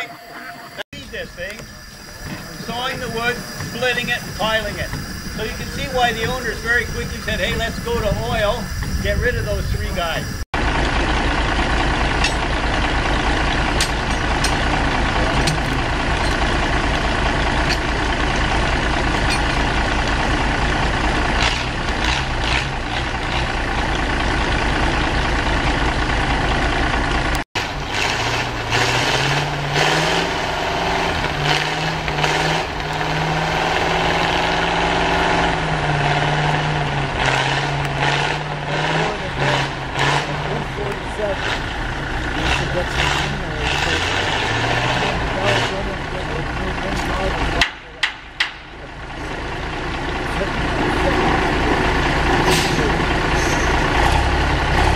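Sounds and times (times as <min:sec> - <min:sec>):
heavy engine throbbing: 0:00.0 - 0:54.9
logs knocking and clanking: 0:47.0 - 0:48.8.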